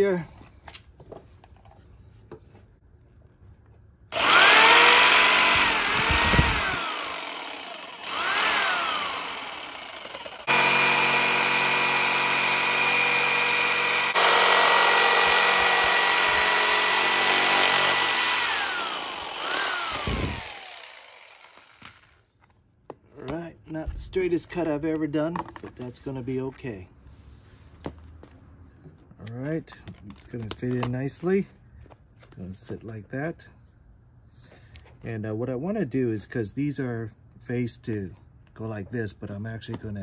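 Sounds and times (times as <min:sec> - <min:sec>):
jigsaw cutting plastic: 0:04.1 - 0:22.2.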